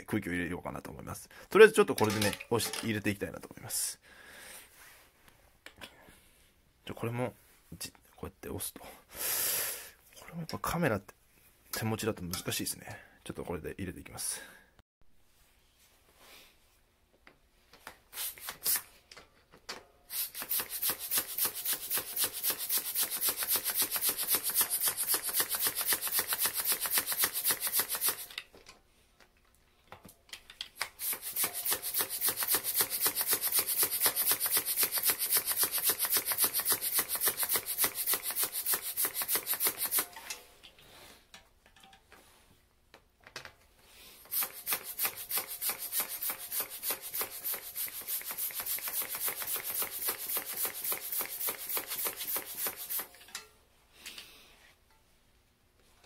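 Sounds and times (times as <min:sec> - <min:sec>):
bicycle pump hissing strokes: 0:20.1 - 0:28.3, 0:30.9 - 0:40.1, 0:44.2 - 0:53.1.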